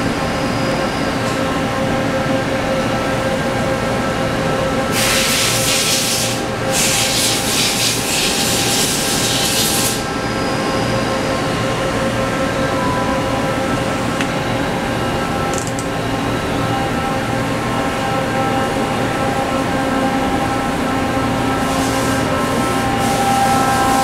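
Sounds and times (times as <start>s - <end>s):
lathe machine hum: 0.0s - 24.0s.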